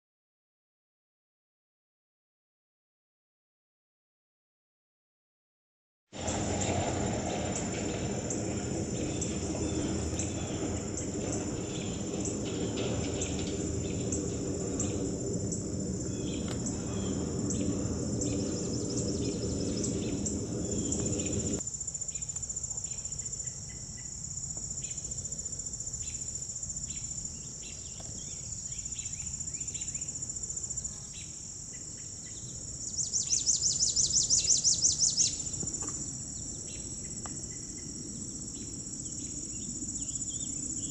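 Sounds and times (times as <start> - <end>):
low rumble: 6.2 - 21.6
insects buzzing and ticking: 7.5 - 40.9
pulsing insect trill: 7.6 - 40.9
bird chirps: 16.0 - 24.1, 32.3 - 36.9.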